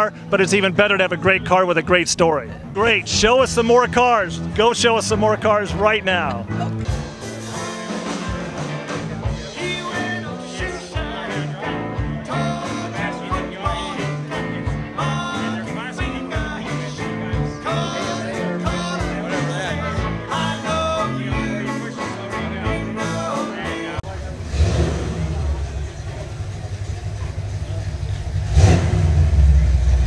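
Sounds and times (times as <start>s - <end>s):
country rock band music: 0.0s - 24.8s.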